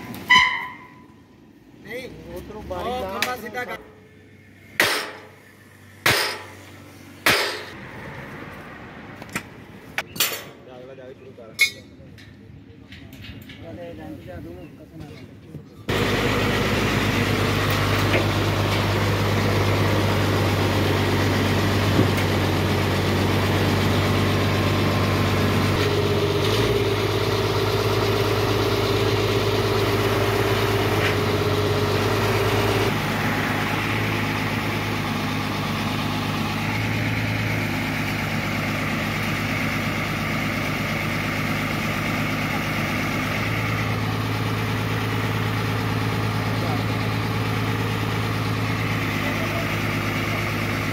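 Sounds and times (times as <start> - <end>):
truck engine running: 0.0 - 10.0, 15.9 - 50.9
hydraulic crane whine: 15.9 - 50.9.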